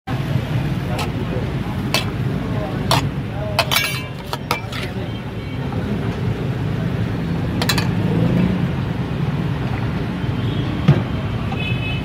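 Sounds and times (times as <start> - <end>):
low rumble of street traffic: 0.1 - 12.0.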